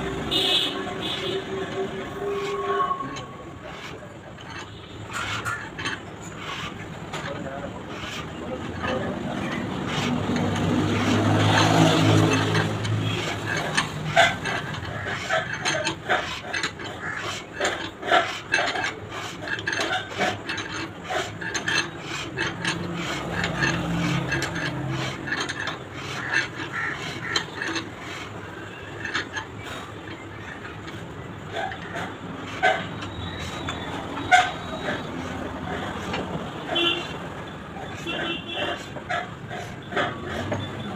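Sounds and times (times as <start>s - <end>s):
boring tool scraping metal: 0.0s - 40.9s.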